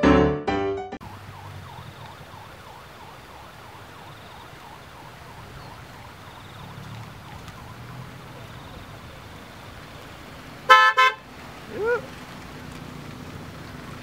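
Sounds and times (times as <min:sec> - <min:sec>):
electronic siren sweeping: 0:01.0 - 0:09.2
van engines humming: 0:01.0 - 0:14.0.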